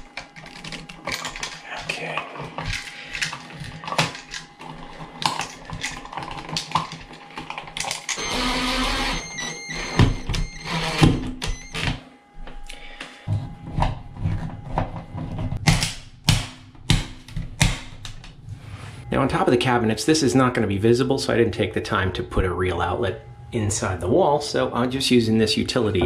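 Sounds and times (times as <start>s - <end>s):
cordless drill running: 8.1s - 11.8s.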